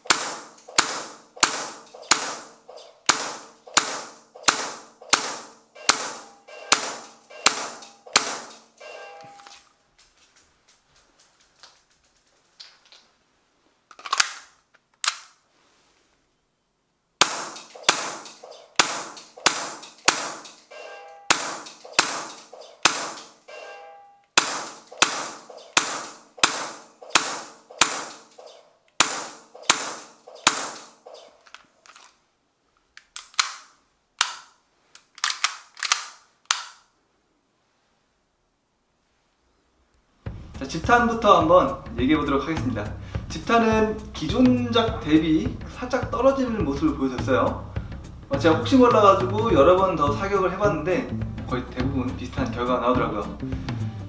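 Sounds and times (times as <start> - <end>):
airsoft pistol shots cracking: 0.0 - 8.7, 17.2 - 20.6, 21.3 - 23.4, 24.4 - 28.4, 29.0 - 31.0.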